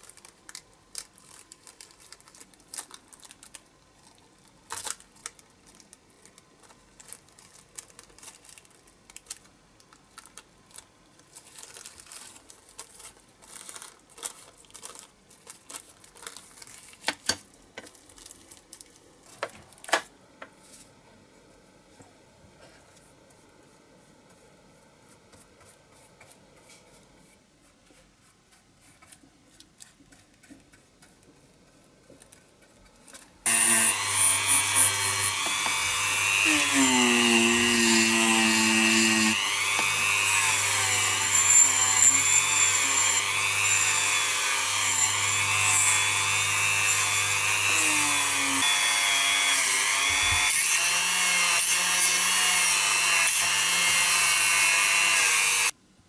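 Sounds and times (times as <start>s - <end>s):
plastic sheet crinkling: 0.0s - 20.0s
rotary tool whine: 33.5s - 55.7s.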